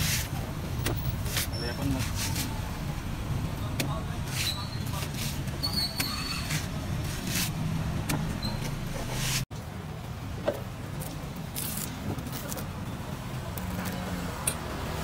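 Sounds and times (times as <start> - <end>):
street traffic hum: 0.0 - 15.0
coconut husk tearing: 11.0 - 12.7.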